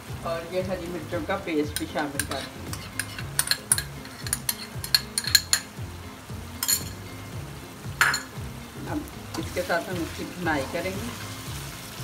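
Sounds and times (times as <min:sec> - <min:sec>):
low sizzle: 0:00.0 - 0:12.0
metal spoon clinking on wok: 0:01.7 - 0:05.7, 0:06.6 - 0:07.0, 0:08.0 - 0:08.4.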